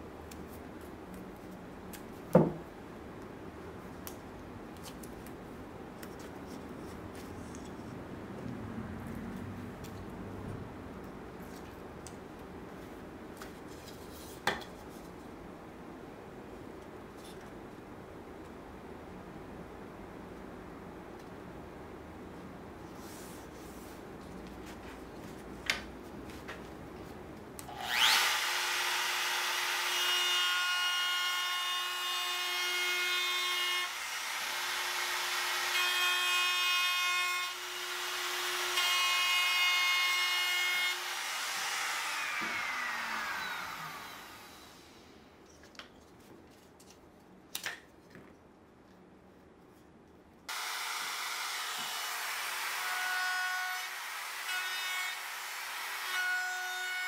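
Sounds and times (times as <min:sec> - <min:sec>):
electric router whining: 0:27.7 - 0:32.4, 0:40.9 - 0:44.9.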